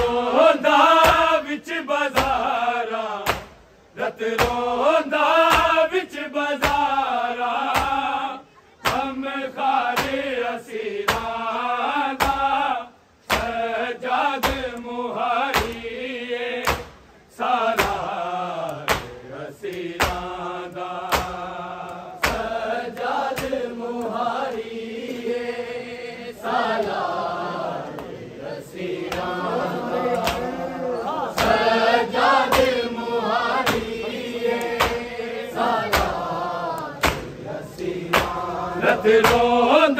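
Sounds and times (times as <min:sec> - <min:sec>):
men chanting a lament: 0:00.0 - 0:39.9
hands beating on chest: 0:04.4 - 0:04.6, 0:14.4 - 0:14.6, 0:18.8 - 0:19.2, 0:20.0 - 0:20.3, 0:21.1 - 0:21.4, 0:22.2 - 0:22.5, 0:33.6 - 0:33.9, 0:34.6 - 0:35.1, 0:35.9 - 0:36.2, 0:37.0 - 0:37.4, 0:38.1 - 0:38.4.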